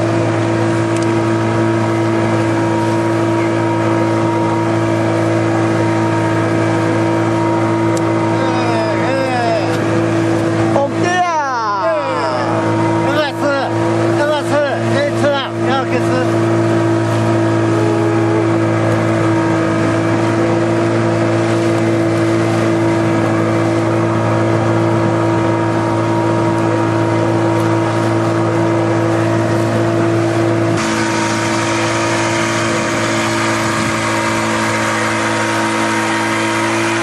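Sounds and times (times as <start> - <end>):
outboard motor running: 0.0 - 37.0.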